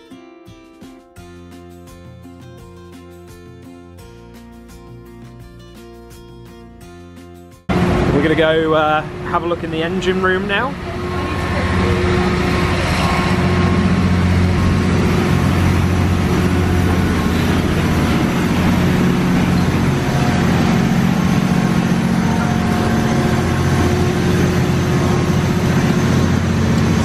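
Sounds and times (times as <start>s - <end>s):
engine room machinery drone: 7.7s - 27.0s.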